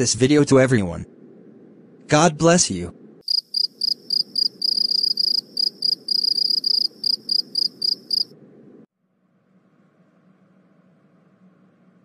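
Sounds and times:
crickets chirping: 3.2s - 8.4s.

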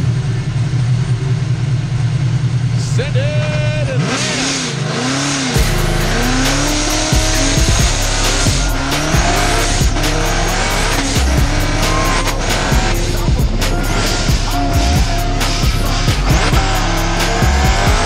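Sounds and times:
car engine revving: 0.0s - 18.0s
music with steady beat: 5.6s - 18.0s
tyres squealing: 5.8s - 18.0s.

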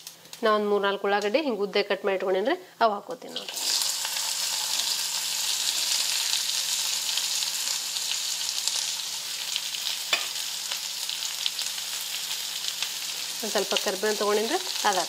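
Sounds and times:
onions sizzling in hot oil: 3.2s - 15.0s.

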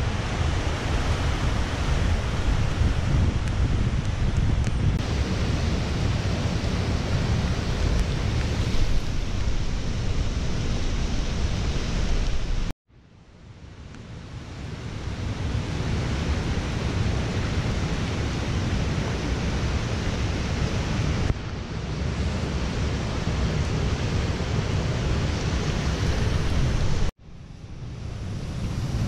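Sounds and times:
mountain stream and waterfall rushing: 0.0s - 12.7s, 14.4s - 27.1s
wind buffeting microphone: 0.0s - 12.7s, 14.7s - 29.0s.

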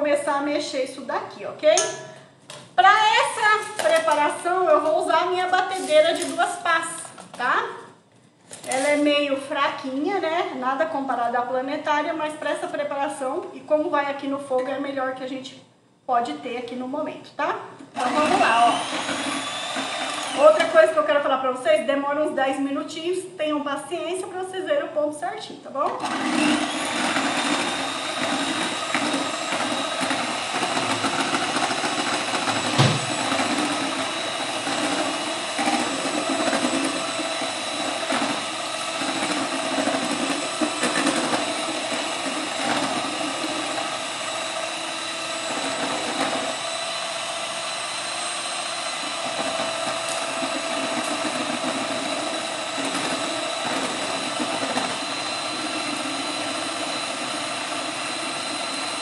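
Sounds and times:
electric hand mixer whining: 18.0s - 21.1s, 26.0s - 59.0s.

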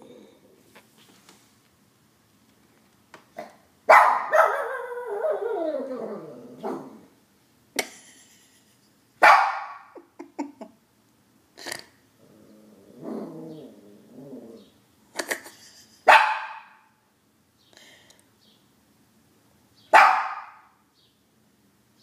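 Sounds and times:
dog yelping: 3.9s - 6.9s, 20.0s - 20.7s
dog howling: 4.4s - 7.0s.

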